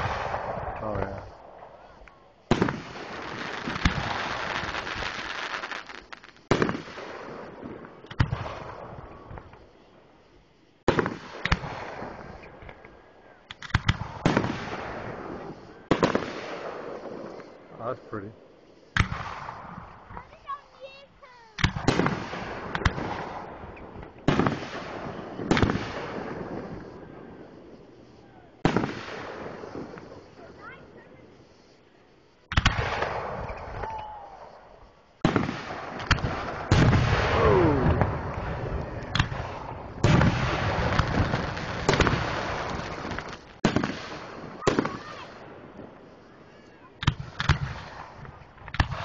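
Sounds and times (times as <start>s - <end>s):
fireworks booms: 0.0s - 49.0s
fireworks small pops: 2.0s - 7.0s, 8.0s - 8.6s, 10.9s - 14.6s, 18.9s - 20.5s, 21.5s - 24.8s, 25.4s - 27.8s, 32.4s - 34.5s, 35.2s - 37.0s, 37.8s - 45.2s, 47.0s - 49.0s.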